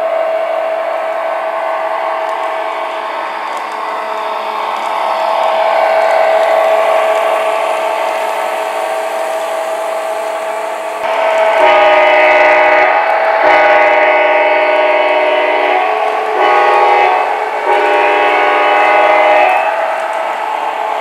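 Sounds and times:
locomotive horn blasts: 11.0 - 20.0
steady tone: 11.0 - 21.0.

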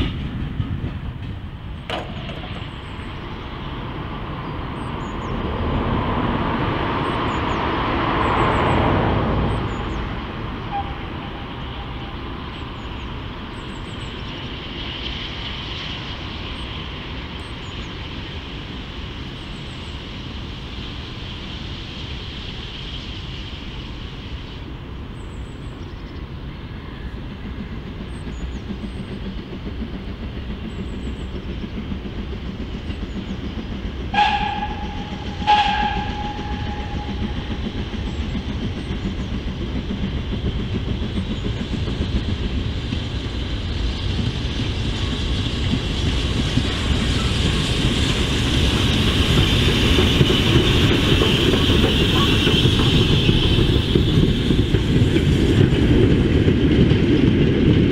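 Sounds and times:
steam train rumbling: 0.0 - 57.9
steam whistle toots: 10.7 - 12.2, 34.1 - 37.5.

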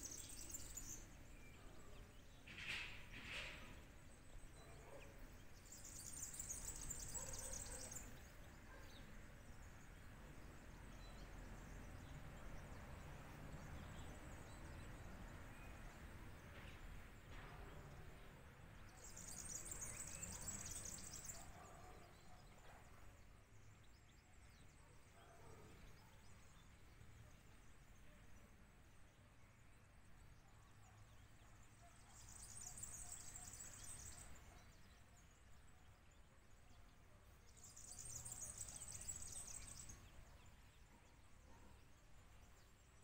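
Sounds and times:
bird singing rapid trill: 0.0 - 2.4, 4.4 - 8.8, 18.9 - 22.5, 31.7 - 35.4, 37.4 - 40.9
faint outdoor background: 0.0 - 43.0.

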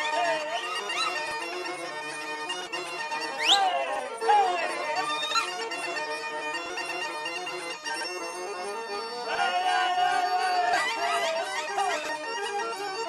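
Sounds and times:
bagpipe folk dance music: 0.0 - 13.0.

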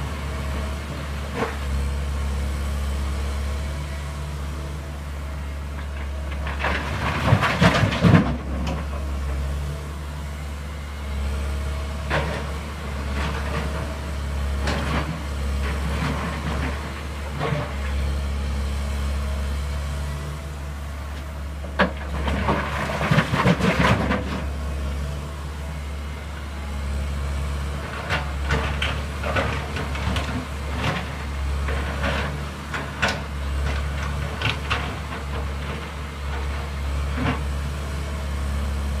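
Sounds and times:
diesel engine hum: 0.0 - 39.0.

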